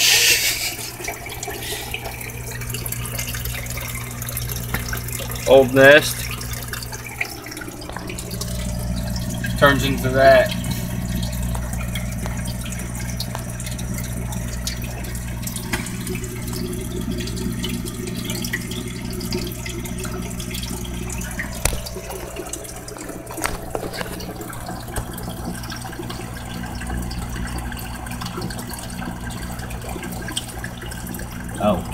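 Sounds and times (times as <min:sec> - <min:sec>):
water splashing into tank: 0:00.0 - 0:31.9
low hum: 0:06.1 - 0:18.8.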